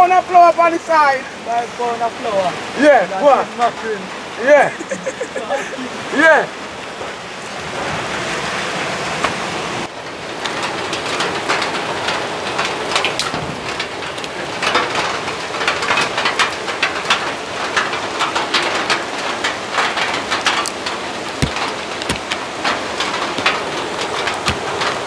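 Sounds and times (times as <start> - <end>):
steady rain falling: 0.0 - 25.0
sharp raindrop hits: 10.1 - 25.0.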